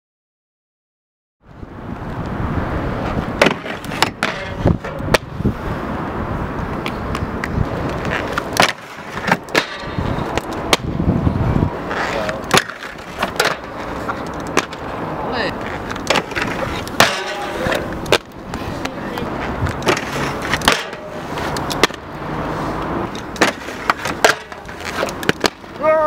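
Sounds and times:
skate wheels rumbling on concrete: 1.6s - 26.0s
skates clacking on rails: 3.4s - 5.3s, 6.7s - 10.9s, 11.9s - 14.9s, 15.6s - 22.0s, 23.1s - 26.0s.

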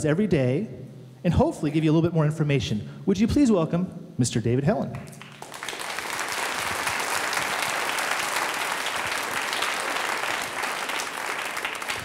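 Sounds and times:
children applauding: 5.2s - 12.0s.

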